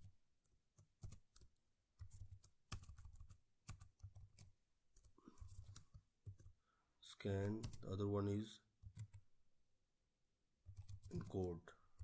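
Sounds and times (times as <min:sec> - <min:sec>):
keyboard typing: 0:00.4 - 0:06.6, 0:07.4 - 0:07.9, 0:08.8 - 0:09.3, 0:10.7 - 0:12.0.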